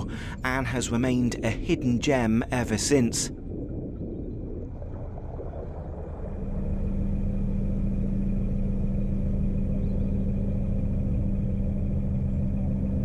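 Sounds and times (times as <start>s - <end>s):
boat engine droning: 0.0s - 13.0s.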